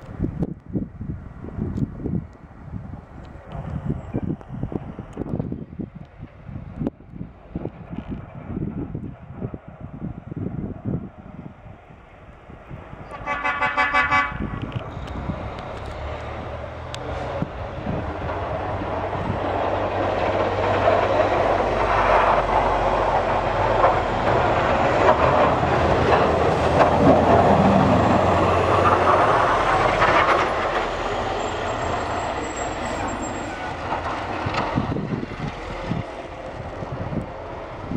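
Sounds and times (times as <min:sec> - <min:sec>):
diesel truck engine: 0:11.4 - 0:37.9
plow blade scraping road: 0:11.7 - 0:37.9.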